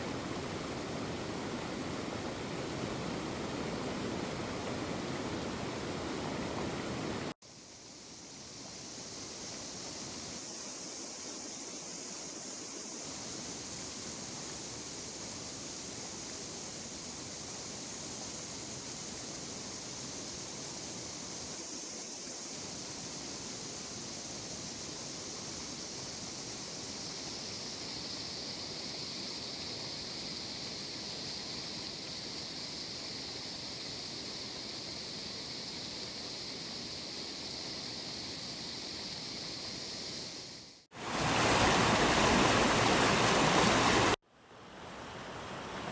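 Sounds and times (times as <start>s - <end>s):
river water flowing: 0.0s - 7.3s, 40.9s - 45.9s.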